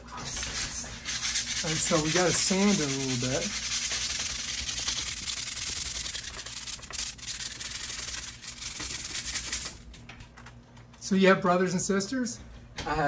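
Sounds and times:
sandpaper scratching on steel: 0:00.2 - 0:08.3.

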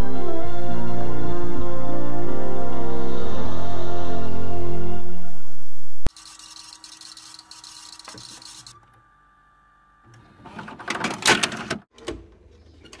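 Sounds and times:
sharp mechanism clicks: 0:06.1 - 0:08.8
motor and gears clattering: 0:06.1 - 0:09.0
cassette recorder rewind whir: 0:06.1 - 0:10.3.

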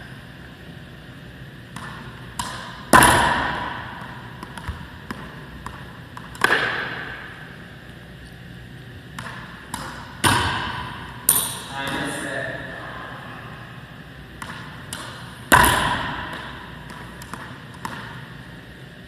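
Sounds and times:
racket striking ball: 0:01.7 - 0:07.6, 0:09.1 - 0:12.1, 0:14.3 - 0:18.5
ball bouncing on wooden floor: 0:04.4 - 0:07.0.

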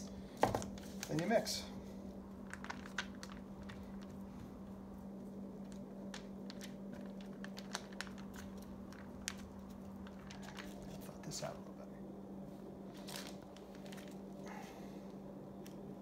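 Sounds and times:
steady low hum: 0:00.0 - 0:16.0
paper crinkling: 0:02.4 - 0:11.4, 0:12.9 - 0:14.6.

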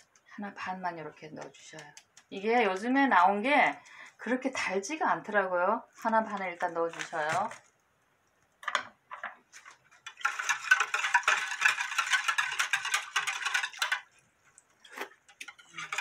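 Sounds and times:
whisk scraping glass bowl: 0:09.6 - 0:16.0.

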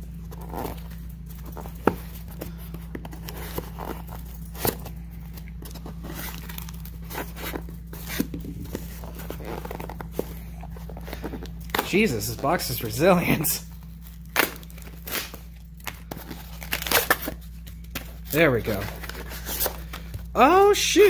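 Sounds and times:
steady low hum: 0:00.0 - 0:21.0
cardboard box tearing: 0:16.2 - 0:17.4.

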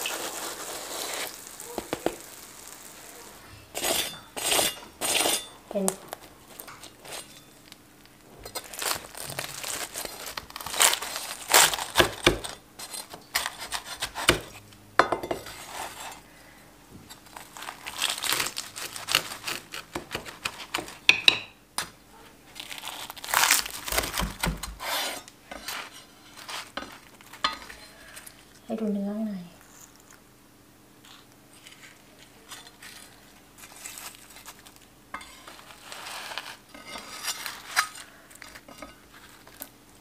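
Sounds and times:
knife cutting crisp crust: 0:03.7 - 0:06.0, 0:08.5 - 0:14.6, 0:17.2 - 0:21.0, 0:22.6 - 0:28.2, 0:31.0 - 0:39.7.

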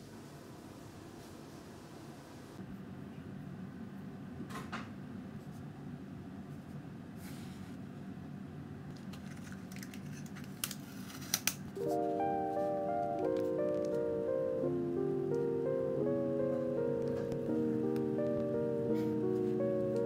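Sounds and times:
room hum: 0:00.0 - 0:20.0
gentle music: 0:11.8 - 0:20.0.

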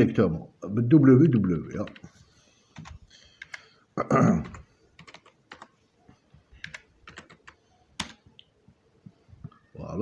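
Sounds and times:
keystrokes on computer keyboard: 0:01.8 - 0:02.1, 0:02.8 - 0:03.7, 0:04.4 - 0:05.8, 0:06.6 - 0:08.5.

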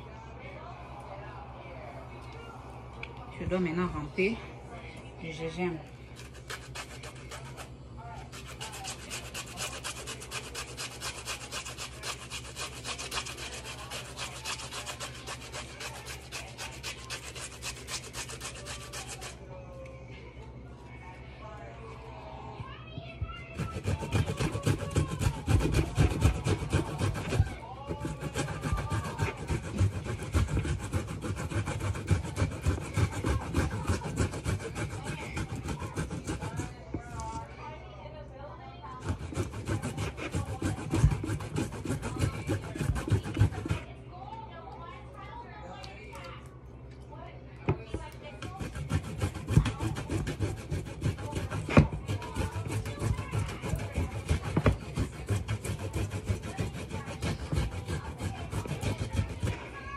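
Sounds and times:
ginger grated on metal grater: 0:06.2 - 0:19.4, 0:23.4 - 0:37.4, 0:38.9 - 0:43.9, 0:48.3 - 0:59.9.

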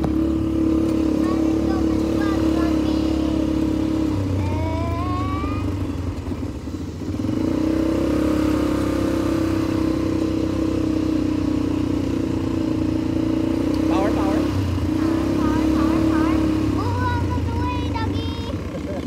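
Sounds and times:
quad bike engine running: 0:00.0 - 0:19.0.

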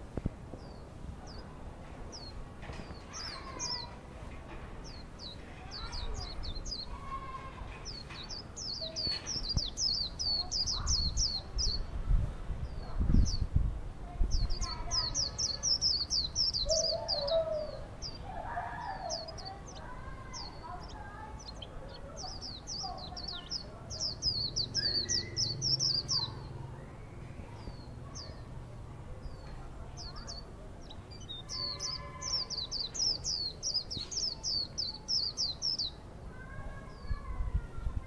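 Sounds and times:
cage bird singing high notes: 0:14.3 - 0:28.4, 0:29.3 - 0:36.0.

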